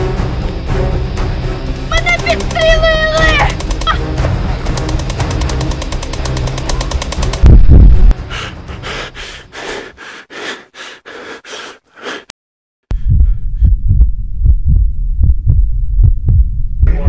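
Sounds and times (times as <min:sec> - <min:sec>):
deep thudding heartbeat: 0:06.8 - 0:08.3, 0:12.9 - 0:17.0.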